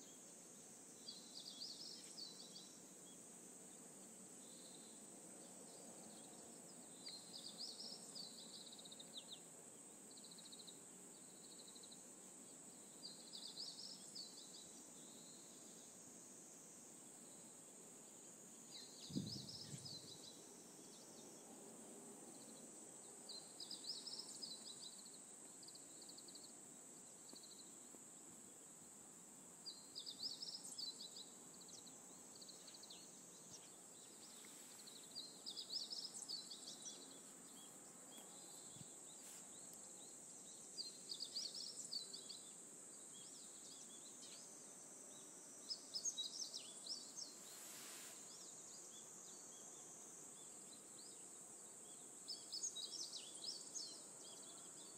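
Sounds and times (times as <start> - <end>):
bird song phrase: 18.7 - 21.3.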